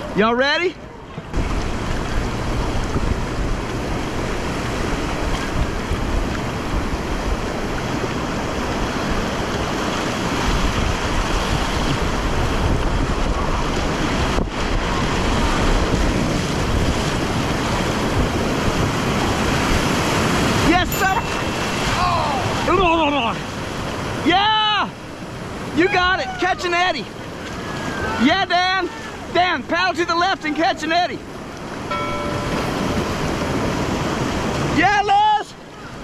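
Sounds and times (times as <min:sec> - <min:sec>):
roar of river rapids: 0:00.0 - 0:36.0
wind noise on microphone: 0:01.2 - 0:22.8.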